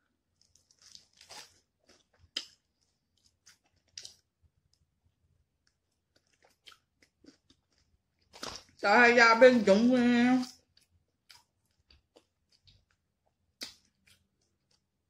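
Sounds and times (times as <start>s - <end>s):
chewing crunches: 0.4s - 4.3s, 5.6s - 8.8s.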